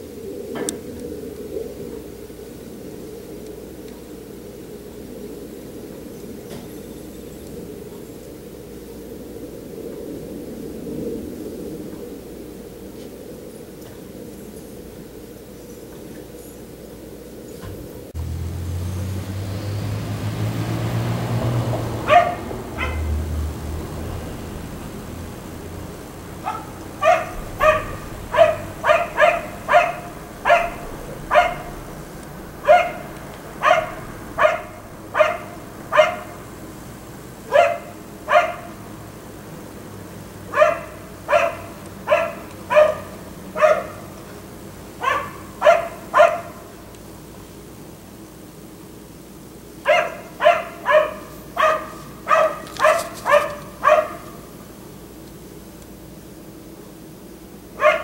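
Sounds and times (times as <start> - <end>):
dog barking: 22.0 - 23.2, 26.3 - 36.5, 37.5 - 38.8, 40.5 - 44.2, 45.0 - 46.8, 49.8 - 54.5, 57.8 - 58.0.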